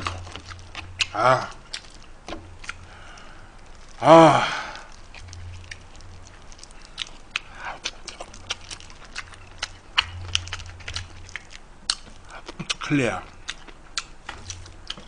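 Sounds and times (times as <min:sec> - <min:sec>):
chewing: 0:00.0 - 0:15.0
crab shells cracking: 0:00.0 - 0:15.0
person exclaiming: 0:04.0 - 0:04.8.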